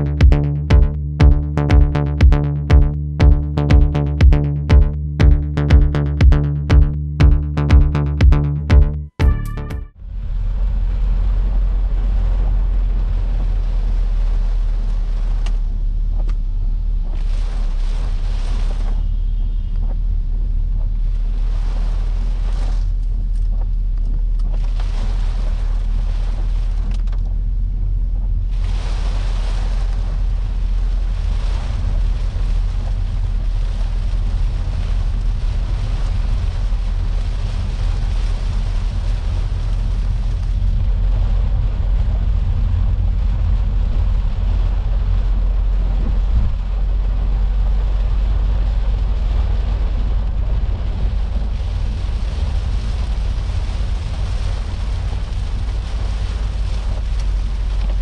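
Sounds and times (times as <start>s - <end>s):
car road and engine rumble: 10.0s - 58.0s
tyres on flooded road: 10.1s - 23.6s, 29.4s - 58.0s
rain hissing on car roof: 10.9s - 19.2s, 22.4s - 58.0s.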